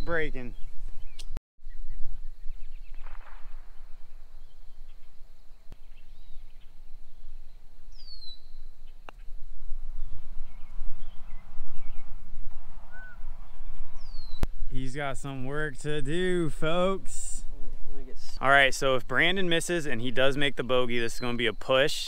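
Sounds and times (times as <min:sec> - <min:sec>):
bird chirp: 0:00.0 - 0:14.5, 0:20.2 - 0:22.0
wind rumbling on microphone: 0:00.0 - 0:21.6.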